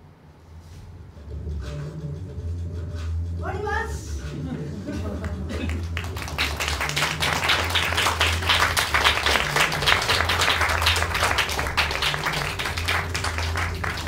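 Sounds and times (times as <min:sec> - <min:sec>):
audience applauding: 0:05.0 - 0:14.0.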